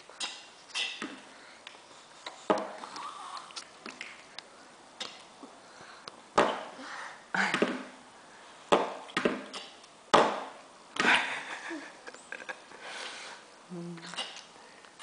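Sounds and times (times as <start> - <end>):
child eating: 0.0 - 6.2
sniffs and breaths: 12.8 - 13.5.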